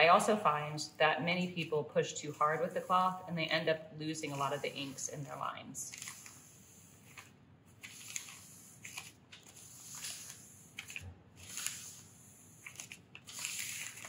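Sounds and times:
paper scrubbing on metal plate: 2.3 - 3.6, 4.2 - 14.0.

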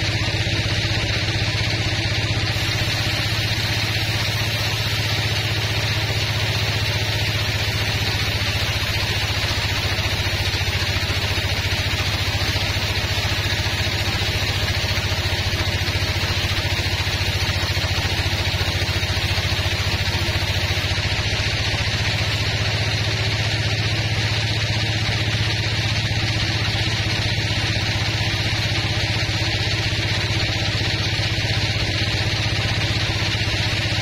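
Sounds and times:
sawmill motor hum: 0.0 - 34.0
saw blade hissing in wood: 2.3 - 24.1.

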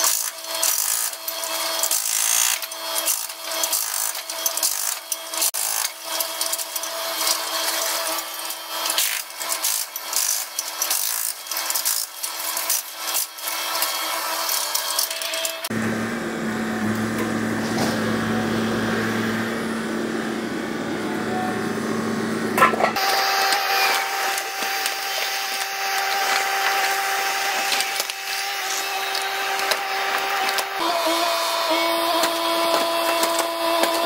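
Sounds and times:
excavator engine and hydraulics hum: 15.6 - 34.0
masonry crunching and grinding: 22.5 - 34.0.

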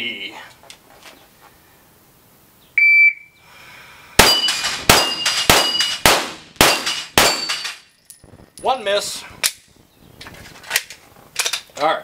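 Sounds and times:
shot timer beep: 2.8 - 3.3
steel plate ringing: 4.2 - 6.0, 6.6 - 7.8
rapid pistol fire: 4.2 - 7.7.

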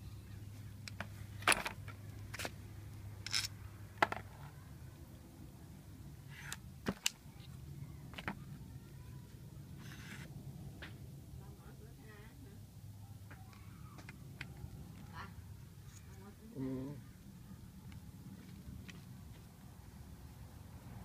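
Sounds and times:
metal clicks and scrapes: 3.2 - 3.5.

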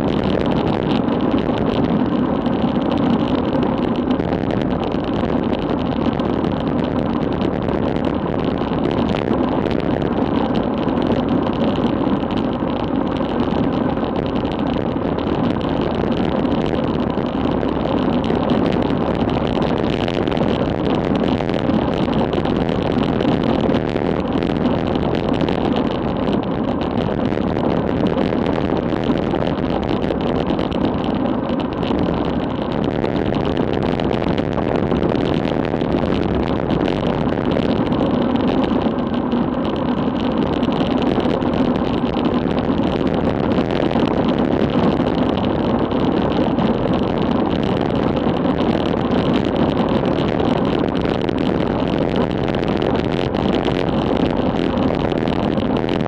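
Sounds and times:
bicycle tyre and road noise: 0.0 - 56.0
wind rushing over microphone: 0.0 - 56.0.

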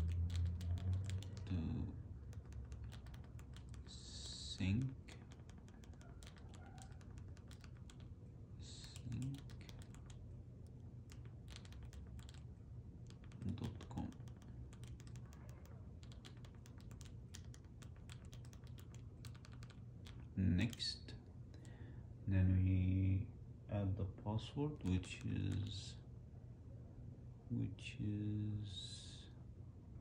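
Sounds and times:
remote control buttons clicking: 0.0 - 1.5, 2.2 - 3.9, 4.6 - 8.1, 8.9 - 20.8.

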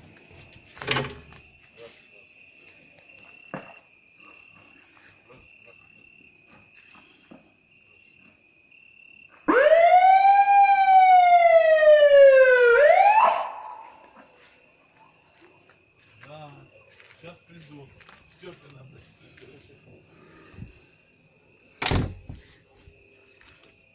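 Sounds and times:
ambulance siren wailing: 9.5 - 14.2.

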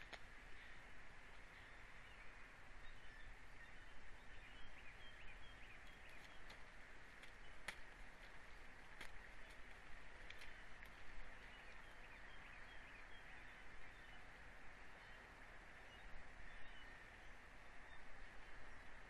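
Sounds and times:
faint bird chirps: 0.0 - 19.0
sharp clicks: 7.2 - 8.4.

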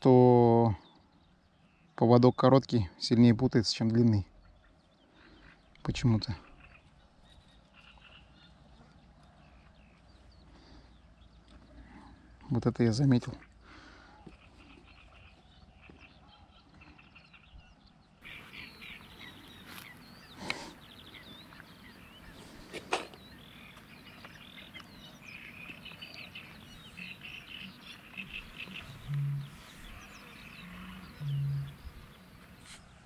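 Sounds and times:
small birds chirping: 0.0 - 33.0
short low-pitched tones: 28.8 - 30.0.

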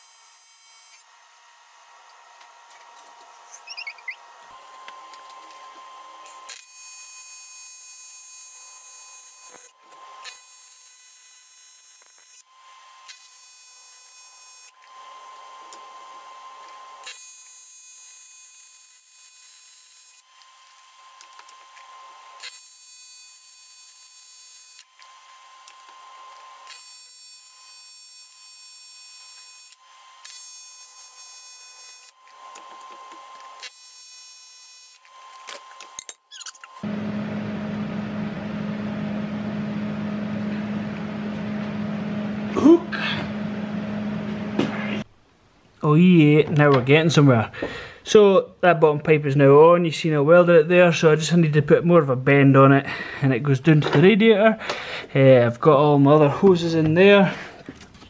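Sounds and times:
welding arc buzzing: 2.7 - 37.8.

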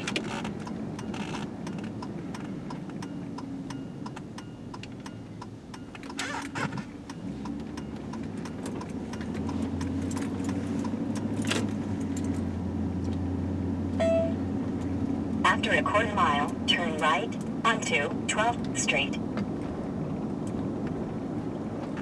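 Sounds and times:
car engine and road noise: 0.0 - 22.0
car turn signal ticking: 0.1 - 11.4, 14.0 - 17.6.

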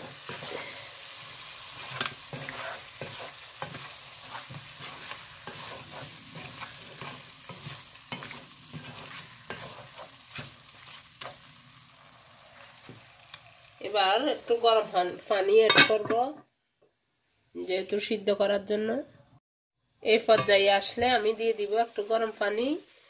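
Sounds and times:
spatula scraping a pot: 0.0 - 11.5
curry sizzling in a pot: 0.0 - 16.1, 19.9 - 23.0.

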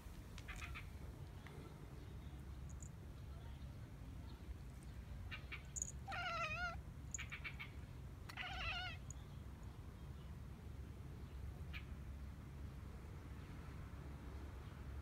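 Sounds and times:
cat meowing: 6.0 - 6.8, 8.3 - 9.0.

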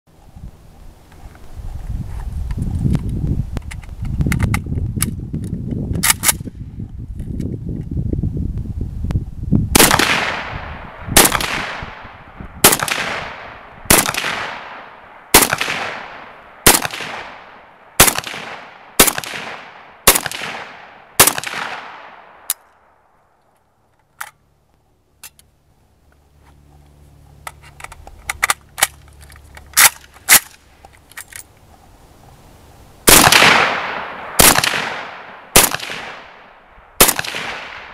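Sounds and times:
rifle clicks: 3.6 - 6.5, 27.4 - 31.5
rifle shots echoing: 9.8 - 22.6, 33.1 - 37.9.

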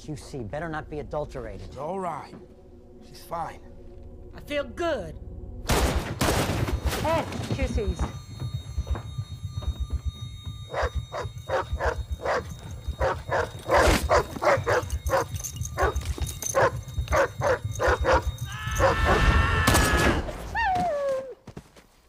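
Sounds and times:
dogs barking: 10.7 - 19.2.

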